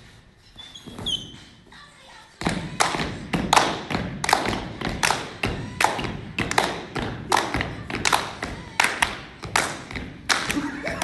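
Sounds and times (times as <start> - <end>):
hand claps: 2.8 - 11.0.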